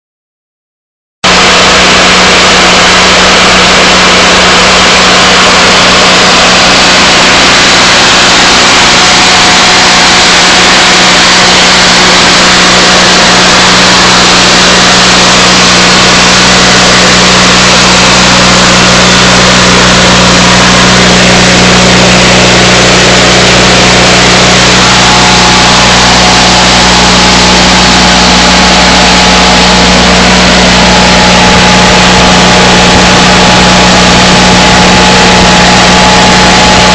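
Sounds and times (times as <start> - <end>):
generator engine running: 1.2 - 36.9.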